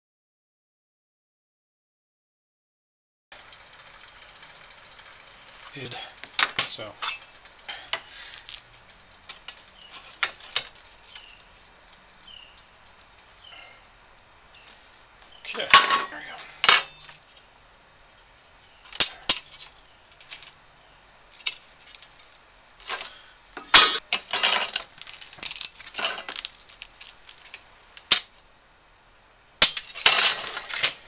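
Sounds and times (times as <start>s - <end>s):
steel sheet clattering on wood: 15.6s - 17.1s, 22.8s - 28.3s, 29.6s - 31.0s.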